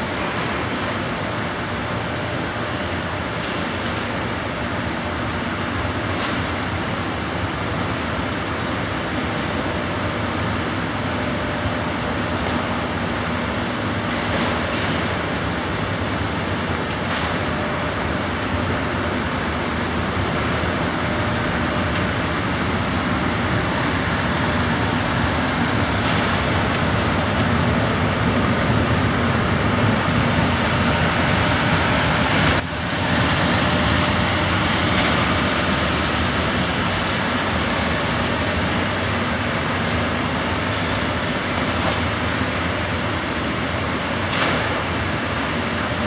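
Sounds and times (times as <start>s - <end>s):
cart rolling rumble: 11.0s - 46.0s.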